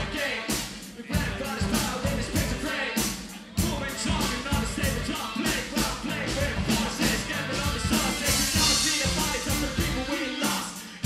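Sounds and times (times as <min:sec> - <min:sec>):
bass guitar: 0:00.0 - 0:11.0
drum kit beat: 0:00.0 - 0:11.0
person singing: 0:00.0 - 0:11.0.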